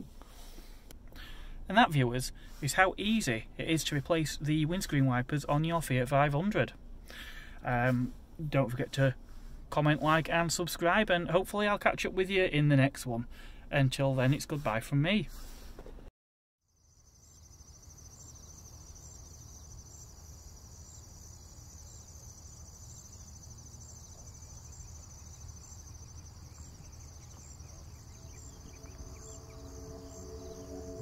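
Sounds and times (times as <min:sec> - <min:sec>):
high-pitched cricket-like trill: 0:16.7 - 0:31.0
low rumble: 0:25.5 - 0:31.0
soft synthesizer music: 0:26.6 - 0:31.0.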